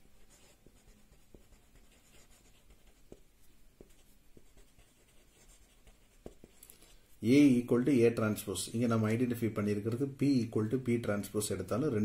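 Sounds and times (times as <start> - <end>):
marker scratching on paper: 0.0 - 6.7.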